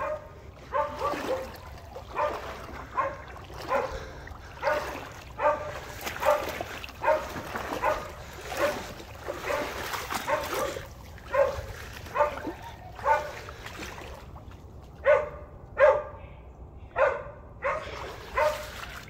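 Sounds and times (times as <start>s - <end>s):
dog baying: 10.2s - 13.4s.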